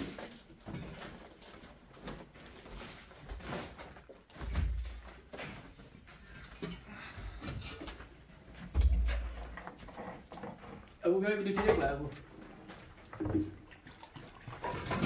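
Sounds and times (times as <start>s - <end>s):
light knocks and bumps: 4.3s - 10.8s.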